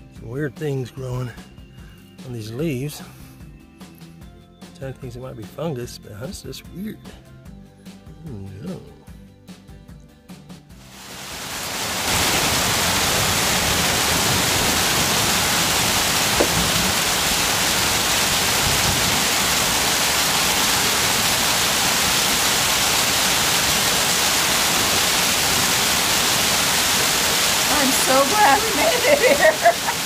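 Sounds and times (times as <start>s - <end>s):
heavy rain pouring: 10.8s - 30.0s.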